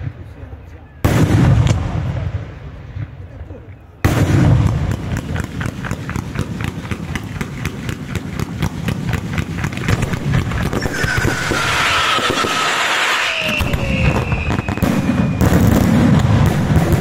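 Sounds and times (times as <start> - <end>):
firework bangs: 1.0 - 3.3, 4.0 - 17.0
falling firework whistle: 10.6 - 15.9.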